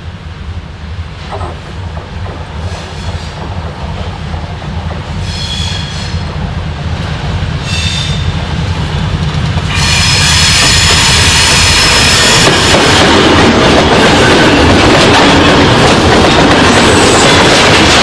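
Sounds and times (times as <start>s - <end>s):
diesel locomotive rumble: 0.0s - 18.0s
metallic squeals from wheels: 5.2s - 6.2s.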